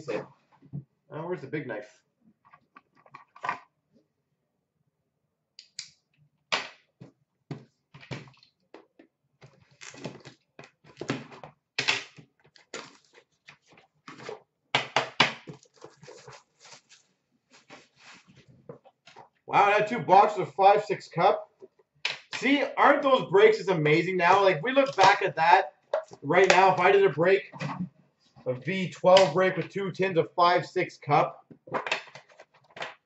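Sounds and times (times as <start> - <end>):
cardboard scraping and tearing: 15.5 - 18.3.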